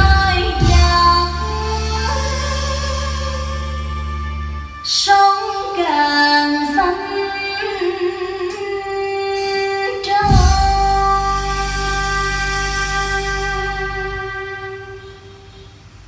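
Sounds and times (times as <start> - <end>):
woman singing recorded song: 0.0 - 3.4, 4.8 - 15.6
bass: 0.0 - 5.2, 10.2 - 16.0.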